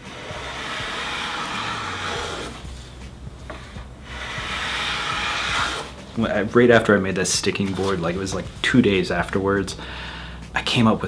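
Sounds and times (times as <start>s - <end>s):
hand plane shaving wood: 0.0s - 6.1s.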